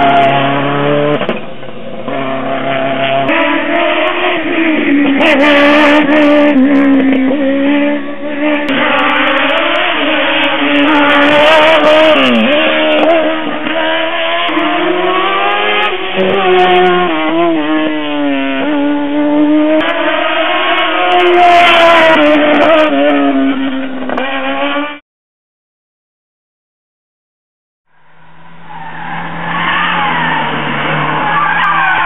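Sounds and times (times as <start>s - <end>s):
race car engine accelerating: 0.0s - 25.0s.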